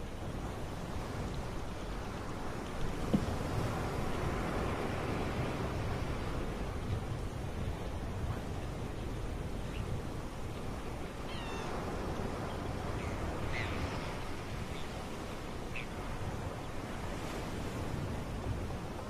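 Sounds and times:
sea and wind: 0.0 - 19.0
high mewing bird calls: 11.3 - 11.8, 13.0 - 14.2.

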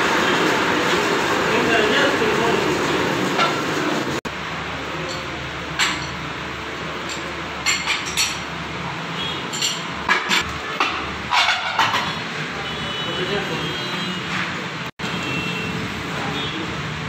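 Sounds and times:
lathe running: 0.0 - 4.2.

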